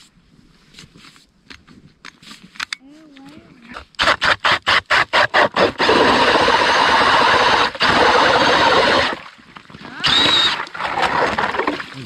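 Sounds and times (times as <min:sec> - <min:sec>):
drill grinding through ice: 0:04.0 - 0:09.2, 0:10.0 - 0:11.8.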